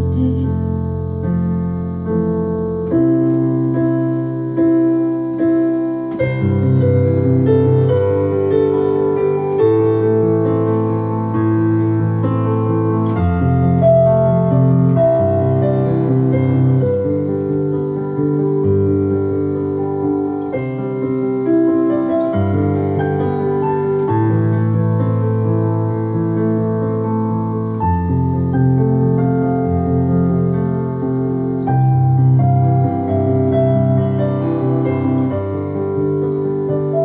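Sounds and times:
slow piano chords and melody: 0:00.0 - 0:37.0.

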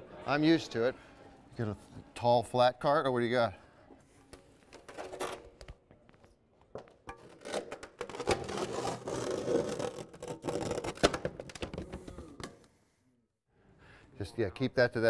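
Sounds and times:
ice sculpture scraping and rubbing: 0:07.3 - 0:11.1.

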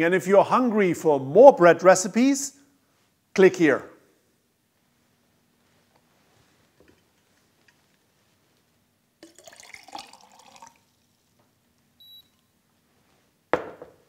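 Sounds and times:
water pouring into a glass mug: 0:09.2 - 0:11.4.

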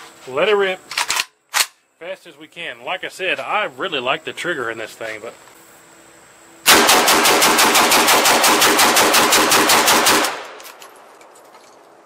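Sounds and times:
rapid pistol gunshots: 0:06.7 - 0:10.6
gunshot echo: 0:06.7 - 0:10.7.

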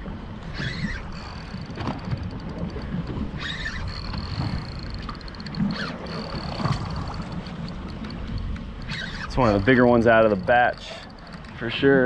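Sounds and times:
wind on microphone: 0:00.0 - 0:12.0
fishing reel clicking: 0:00.5 - 0:12.0.

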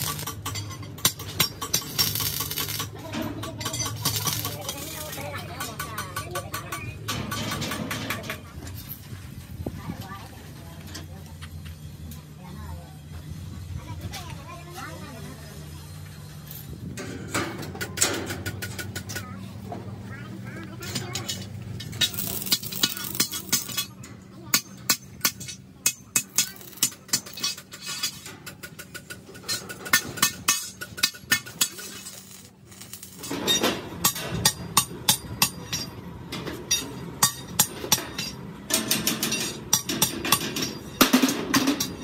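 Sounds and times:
metal clinks and knocks: 0:20.8 - 0:42.0.

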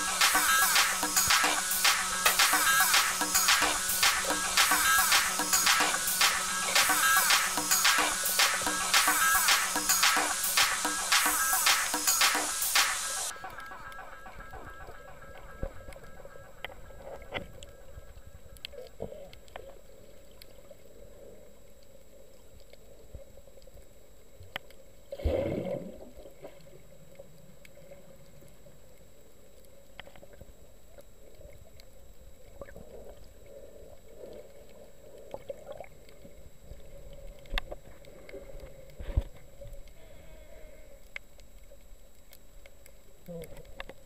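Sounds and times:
muffled underwater hum: 0:13.3 - 0:24.0
small clicks and crackles: 0:15.6 - 0:44.0.

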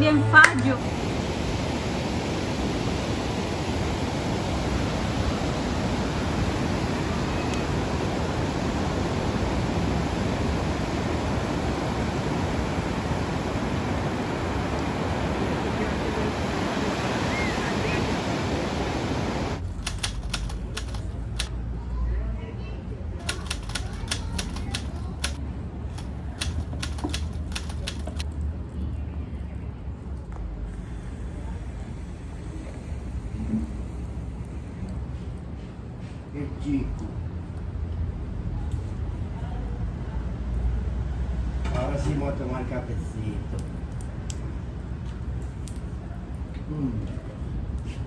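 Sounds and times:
ocean surf washing onto beach: 0:00.0 - 0:21.5, 0:23.2 - 0:25.4, 0:26.0 - 0:28.2.

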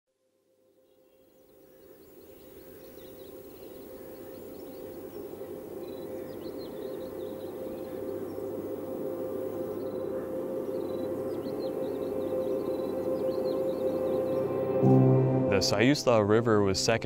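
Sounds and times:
birds chirping: 0:00.8 - 0:16.8
steady low drone: 0:04.9 - 0:17.0.

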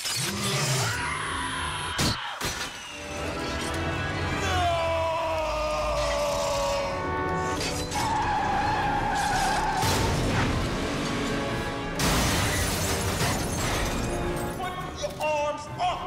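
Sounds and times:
dramatic film score: 0:00.0 - 0:16.0
car crash: 0:09.1 - 0:14.4.

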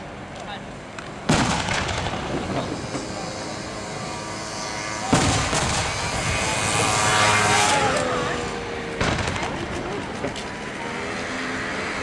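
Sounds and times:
firework crackle: 0:01.0 - 0:03.4, 0:05.1 - 0:06.6, 0:09.0 - 0:10.5
firework boom: 0:01.3 - 0:02.8, 0:05.1 - 0:06.1, 0:09.0 - 0:09.7.

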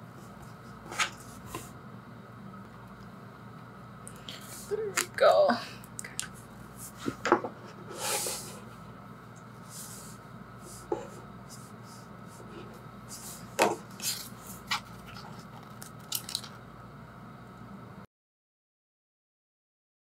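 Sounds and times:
paper rustling: 0:13.1 - 0:16.5.

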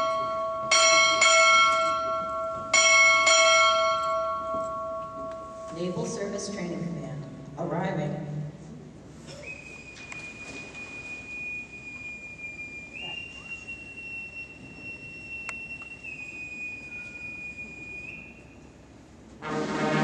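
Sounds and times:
boatswain's call whistle: 0:09.3 - 0:18.7.

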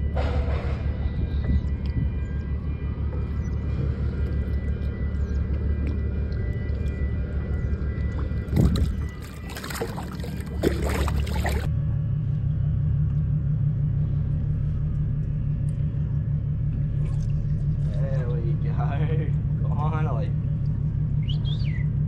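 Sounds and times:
low steady drone: 0:00.0 - 0:22.0
water splashing: 0:04.0 - 0:11.7.

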